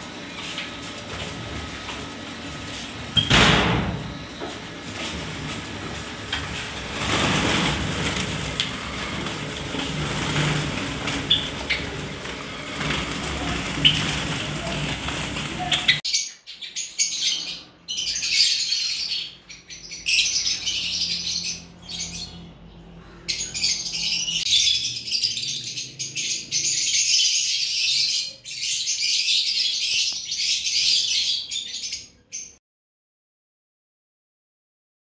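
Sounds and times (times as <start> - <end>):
small birds chirping and twittering: 8.9 - 32.6.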